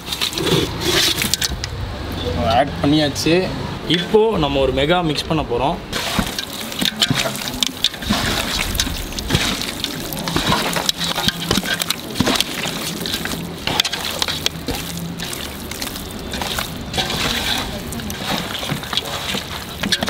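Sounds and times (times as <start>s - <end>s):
hands squelching wet paste: 0.0s - 1.8s, 5.9s - 20.0s.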